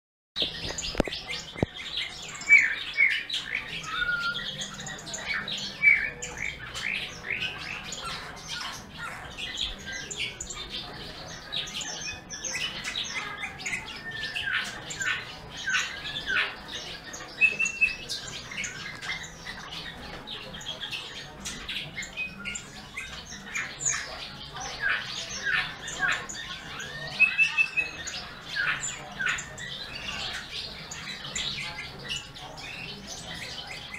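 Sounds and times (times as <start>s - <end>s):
songbirds chirping: 0.4s - 33.9s
bird whistles: 3.8s - 4.8s, 17.4s - 18.8s.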